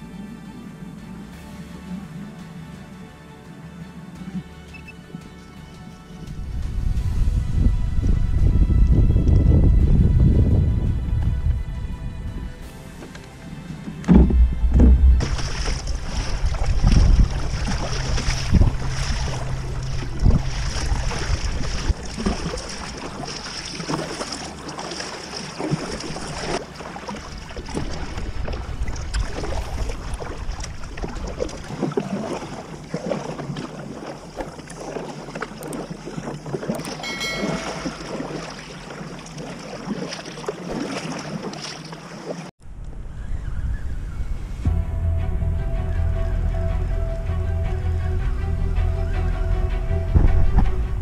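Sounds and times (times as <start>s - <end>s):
wind buffeting microphone: 6.2s - 25.0s, 25.6s - 32.9s, 42.6s - 45.0s, 48.8s - 51.0s
water splashing against kayak hull: 12.4s - 42.5s.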